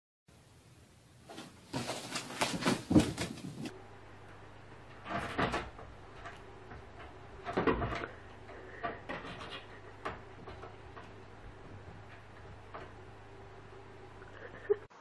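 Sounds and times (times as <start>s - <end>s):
cat scrambling: 7.8s - 12.5s.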